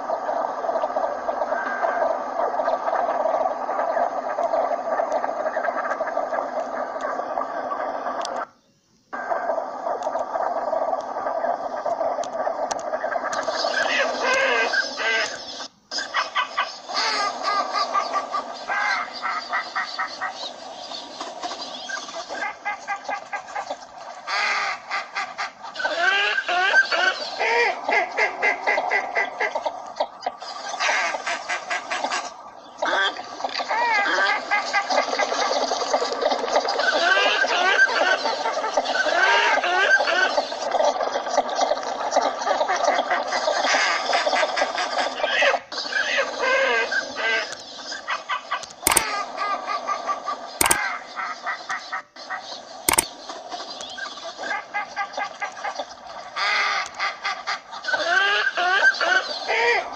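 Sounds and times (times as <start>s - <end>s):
flock of ducks calling: 0.0s - 8.5s, 9.2s - 59.9s
rapid clicking duck notes: 50.6s - 50.8s.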